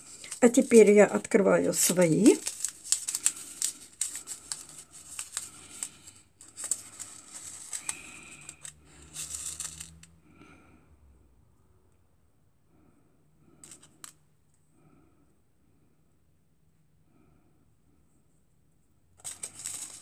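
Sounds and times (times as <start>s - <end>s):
paper packet tearing and rustling: 0.0s - 10.1s, 19.2s - 20.0s.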